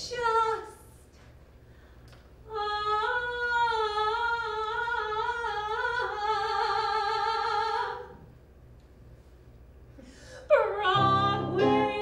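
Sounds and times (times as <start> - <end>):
woman singing a long note: 10.5 - 12.0.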